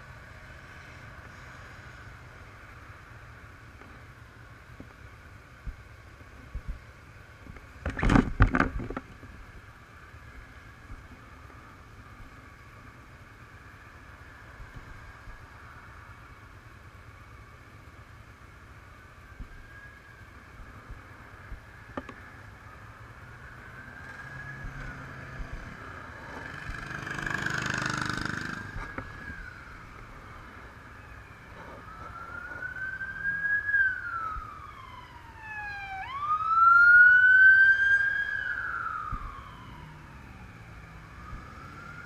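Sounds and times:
passing vehicle rush: 20.8s - 42.0s
siren wailing: 22.6s - 42.0s.

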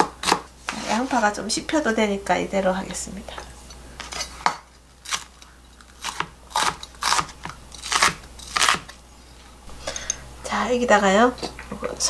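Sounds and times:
knife crunching through onion: 5.0s - 9.0s.

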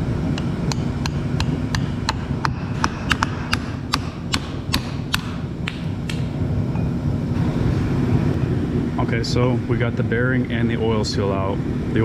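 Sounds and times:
low hum: 0.0s - 12.0s
hammer tapping steel rod: 0.4s - 6.3s.

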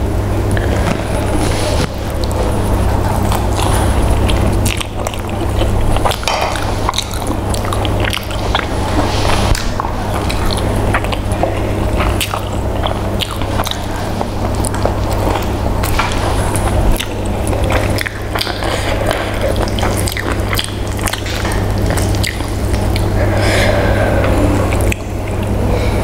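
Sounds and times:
chewing crackles: 0.0s - 25.9s
low hum: 0.0s - 26.0s.

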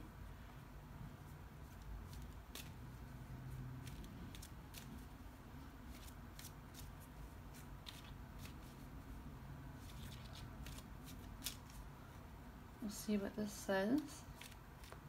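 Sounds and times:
card deck shuffling: 3.8s - 5.1s, 5.9s - 8.8s, 9.8s - 11.8s, 14.4s - 15.0s.

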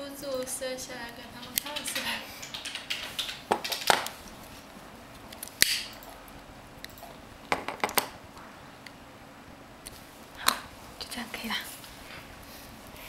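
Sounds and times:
small hard objects clicking: 1.4s - 4.1s.

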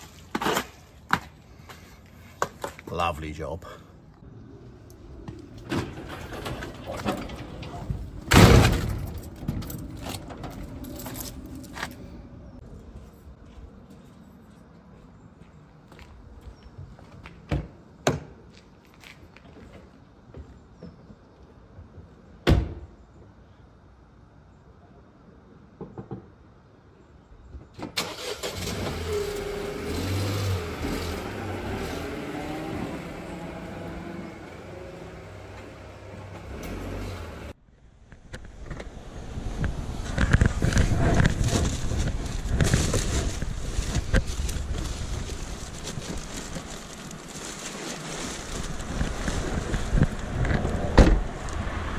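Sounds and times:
garage door slamming shut: 5.7s - 9.6s
car engine starting and driving off: 28.0s - 37.6s.

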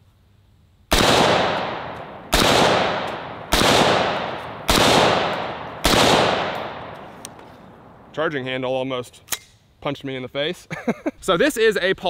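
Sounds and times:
gunshot echo: 0.9s - 7.3s
rifle shots: 0.9s - 8.1s.

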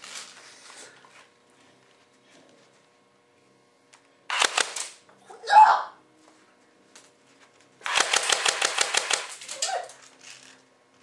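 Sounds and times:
toy gun firing bursts: 4.3s - 5.0s, 7.8s - 9.6s
person yelping in pain: 5.3s - 5.9s.

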